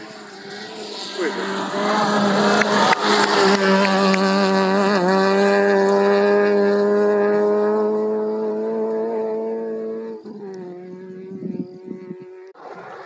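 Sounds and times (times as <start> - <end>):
gravel spraying under tyres: 0.0 - 9.3
rally car engine at high revs: 0.0 - 13.0.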